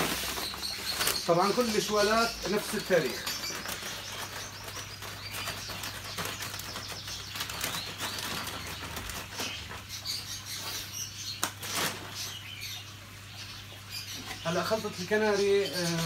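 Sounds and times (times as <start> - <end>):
seed sack rustling and crackling: 0.0 - 10.8, 11.4 - 12.4
cage birds chirping: 0.0 - 16.0.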